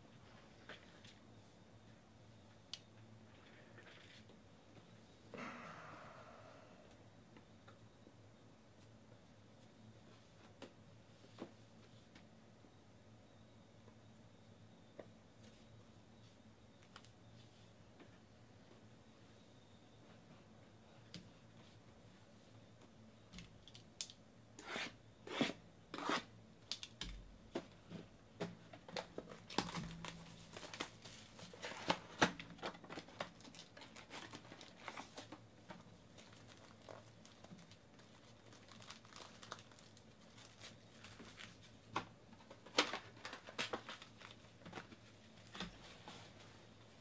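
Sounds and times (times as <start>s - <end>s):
wrapping tearing and crinkling: 29.3s - 35.2s, 36.2s - 41.7s, 42.6s - 44.9s.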